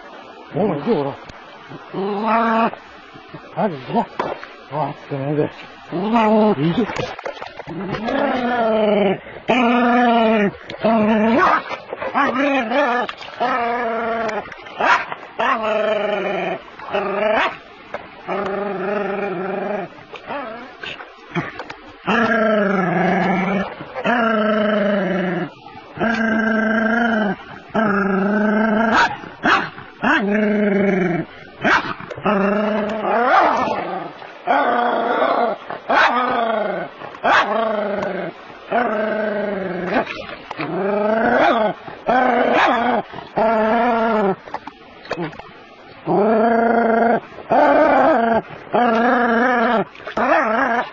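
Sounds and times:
dog growling barks: 5.9 - 16.2, 21.3 - 44.4.

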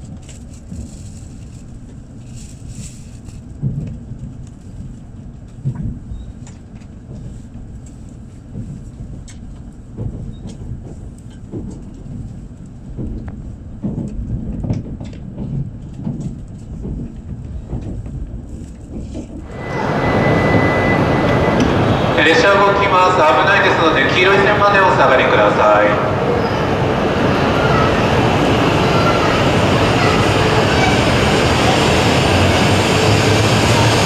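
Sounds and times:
train running rumble: 0.0 - 34.0.

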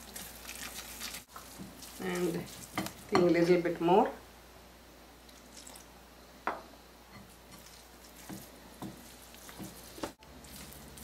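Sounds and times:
spatula stirring batter in bowl: 0.0 - 3.5, 7.1 - 11.0.

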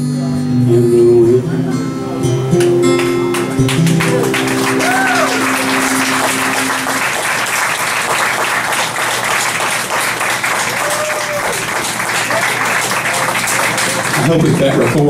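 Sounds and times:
acoustic guitar chord ringing: 0.0 - 8.7
audience applauding: 2.5 - 15.0.

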